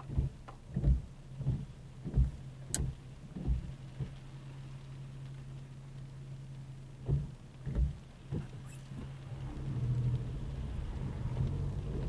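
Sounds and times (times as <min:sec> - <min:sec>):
car engine idling: 0:00.0 - 0:12.0
tyre noise on wet road: 0:00.0 - 0:12.0.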